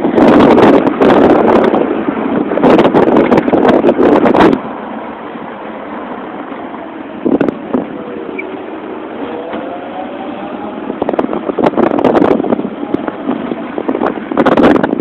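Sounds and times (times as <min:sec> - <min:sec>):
road and wind noise: 0:00.0 - 0:15.0
wind buffeting on microphone: 0:00.0 - 0:15.0
faint rising whine: 0:04.2 - 0:14.8.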